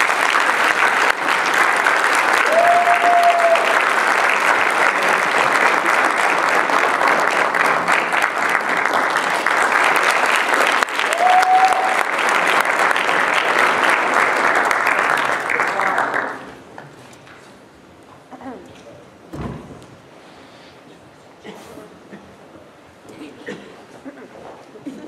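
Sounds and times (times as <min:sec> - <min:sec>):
audience applauding: 0:00.0 - 0:16.9
short cheers: 0:02.4 - 0:03.8, 0:11.0 - 0:12.1.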